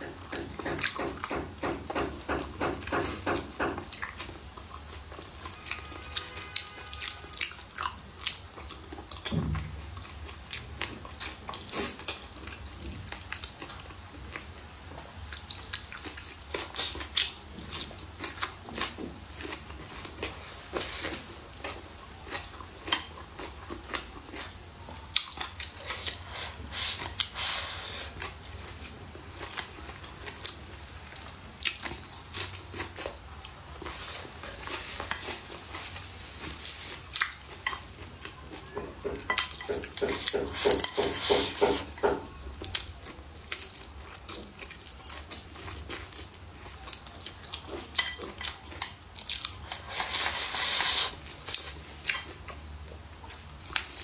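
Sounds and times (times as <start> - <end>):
chopsticks scraping ceramic plate: 39.0 - 42.2, 49.7 - 51.2.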